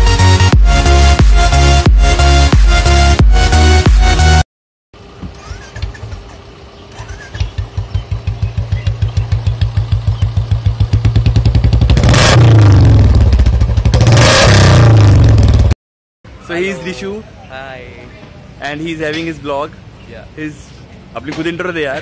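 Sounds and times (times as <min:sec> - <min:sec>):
motorcycle engine idling and revving: 0:05.0 - 0:15.8.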